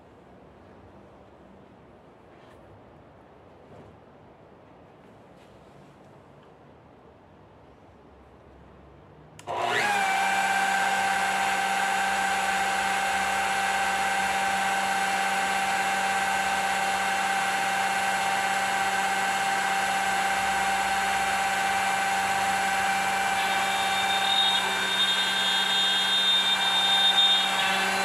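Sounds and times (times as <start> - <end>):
spindle motor whining: 9.4 - 28.0.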